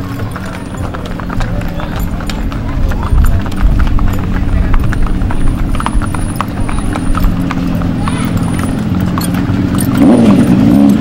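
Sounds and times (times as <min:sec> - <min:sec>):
hooves clip-clopping on asphalt: 0:00.0 - 0:11.0.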